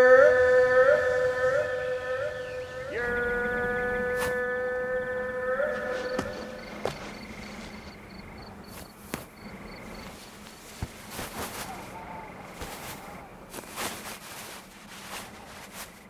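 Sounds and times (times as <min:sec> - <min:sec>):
insect chirping: 0:00.0 - 0:16.0
low steady hum: 0:00.0 - 0:16.0
fabric rustling: 0:05.7 - 0:16.0.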